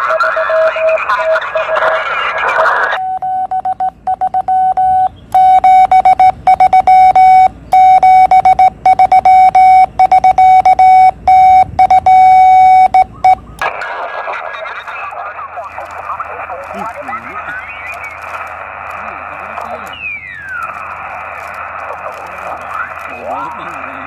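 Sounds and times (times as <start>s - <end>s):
morse code beeps: 3.0s - 13.6s
radio receiver hiss: 13.5s - 24.0s.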